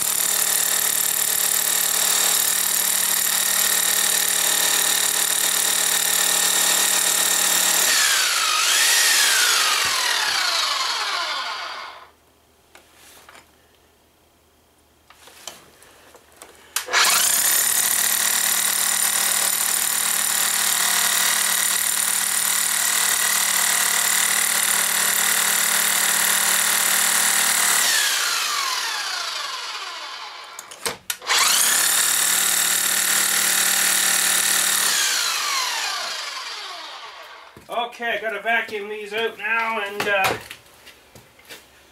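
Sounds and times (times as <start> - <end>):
hammer drill boring into concrete: 0.0 - 12.1, 16.8 - 37.6.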